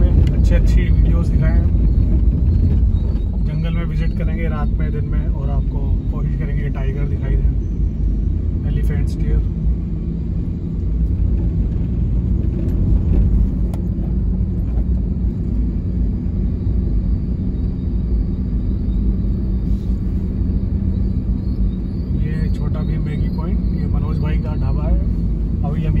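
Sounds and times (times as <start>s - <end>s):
car engine and tyres rumbling: 0.0s - 26.0s.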